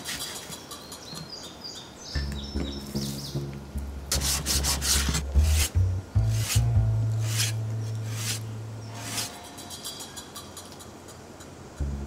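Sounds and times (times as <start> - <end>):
soft background music: 2.2 - 10.0.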